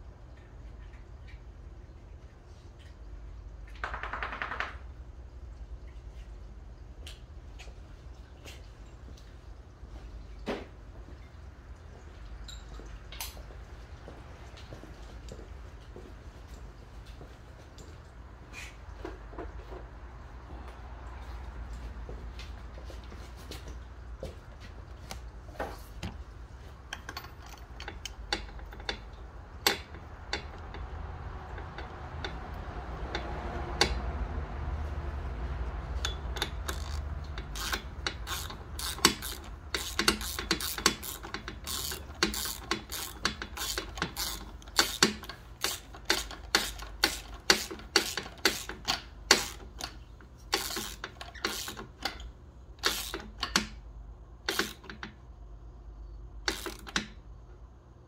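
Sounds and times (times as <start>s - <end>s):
socket ratchet clicking: 27.0s - 34.1s, 35.9s - 53.8s, 54.5s - 55.2s, 56.4s - 57.2s.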